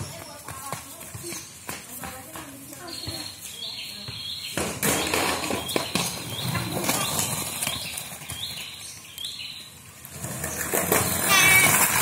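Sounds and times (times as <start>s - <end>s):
skateboard rattling over tiles: 4.6s - 8.9s, 10.0s - 12.0s.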